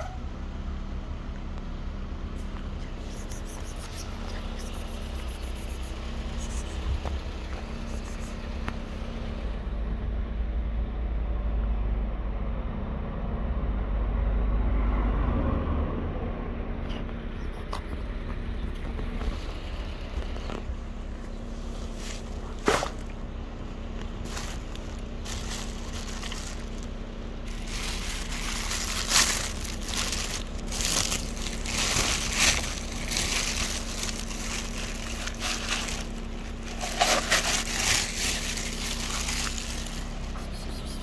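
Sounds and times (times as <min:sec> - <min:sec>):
steady low hum: 0:00.2 - 0:14.6, 0:15.9 - 0:41.0
irregular crackling and rustling: 0:16.9 - 0:40.5.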